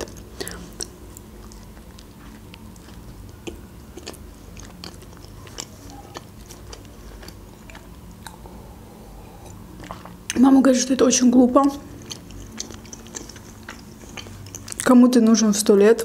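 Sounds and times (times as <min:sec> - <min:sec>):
chewing with wet mouth clicks: 0:00.0 - 0:08.5, 0:09.4 - 0:10.4, 0:11.8 - 0:15.0
low steady hum: 0:00.0 - 0:16.0.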